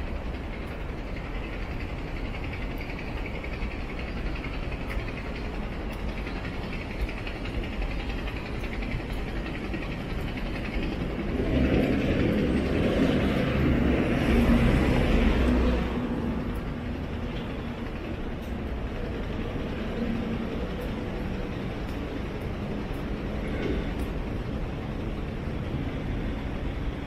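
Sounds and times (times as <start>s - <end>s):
city background noise: 0.0s - 27.0s
vehicle passing with low rumble: 10.6s - 27.0s.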